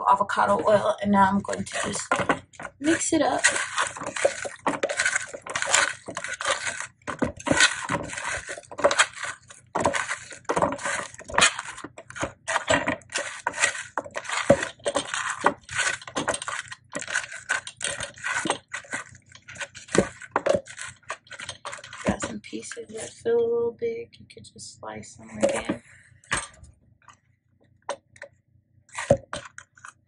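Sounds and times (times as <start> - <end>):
squash wedges scraping and knocking: 0.3 - 23.2, 28.9 - 30.0.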